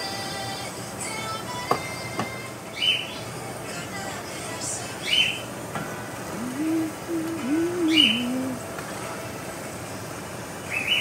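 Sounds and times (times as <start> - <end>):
bird cooing: 6.3 - 8.6.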